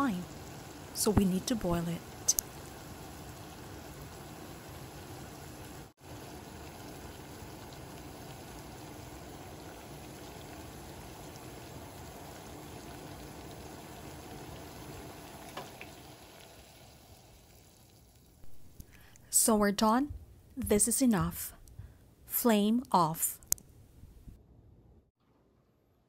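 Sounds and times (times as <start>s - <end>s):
liquid boiling in a pot: 0.0s - 18.5s.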